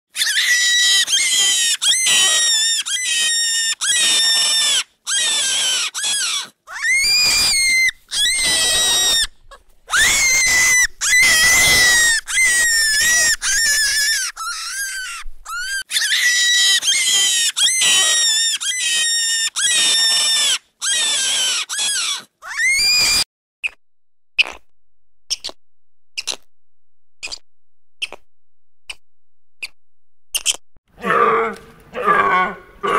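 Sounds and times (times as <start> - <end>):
animal squealing: 0.2 - 23.2.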